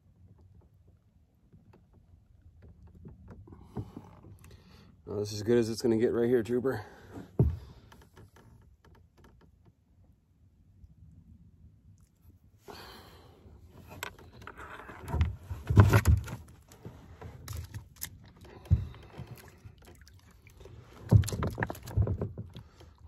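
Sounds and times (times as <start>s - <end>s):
thumps on kayak hull: 7.2s - 7.8s, 21.0s - 22.7s
rustling and scraping: 13.6s - 23.0s.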